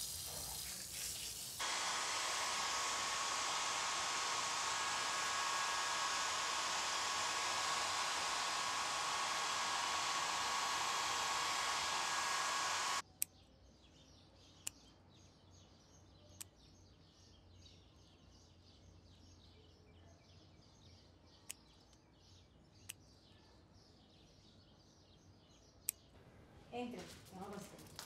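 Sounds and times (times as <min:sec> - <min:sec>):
hair dryer blowing: 0:01.2 - 0:13.0
faint bird chirps: 0:13.1 - 0:26.1.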